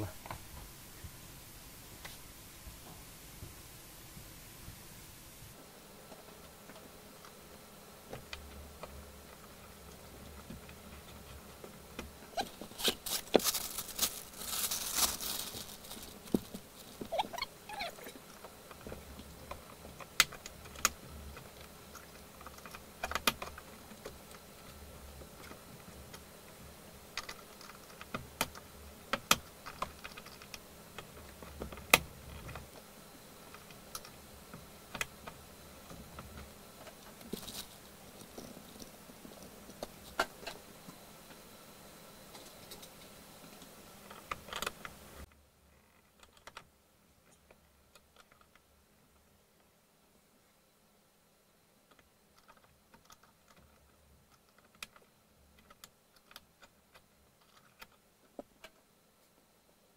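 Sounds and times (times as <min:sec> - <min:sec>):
rustling: 0:00.0 - 0:26.2, 0:34.8 - 0:41.5.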